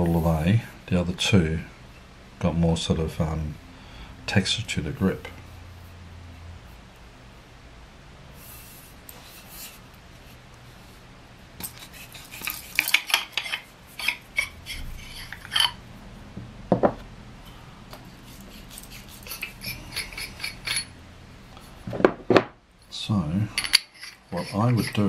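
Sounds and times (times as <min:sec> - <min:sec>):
threads scraping: 0:11.6 - 0:15.9, 0:18.0 - 0:21.8, 0:23.4 - 0:25.0
metal parts clinking: 0:19.3 - 0:20.9, 0:23.5 - 0:25.0.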